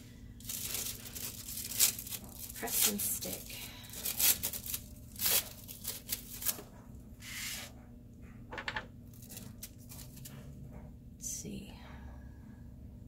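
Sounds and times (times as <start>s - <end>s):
paper rustling: 0.4s - 3.3s
card sliding on cutting mat: 7.2s - 7.7s.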